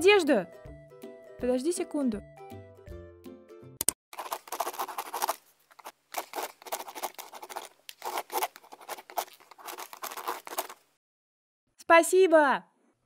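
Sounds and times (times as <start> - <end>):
stylus scratching on tablet: 4.2 - 10.8.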